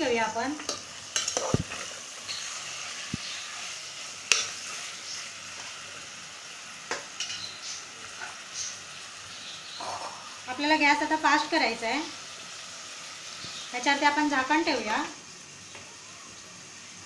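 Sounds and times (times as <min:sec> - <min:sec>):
chicken sizzling in oil: 0:00.0 - 0:17.0
spoon scraping and clinking pot: 0:00.6 - 0:02.8, 0:04.3 - 0:04.8.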